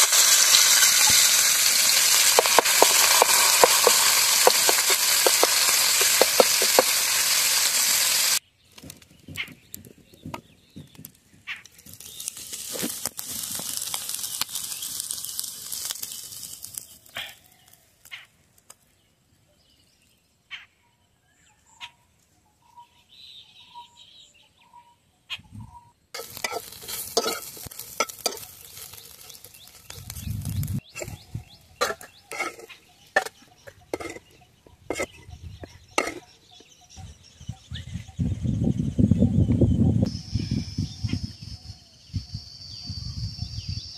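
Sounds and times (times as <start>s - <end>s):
prawns sizzling in hot oil: 0.0s - 8.4s, 11.8s - 17.8s, 26.2s - 36.6s
spatula clicks and scrapes: 26.2s - 30.2s, 31.8s - 34.3s
short bird-like chirps: 39.3s - 43.9s.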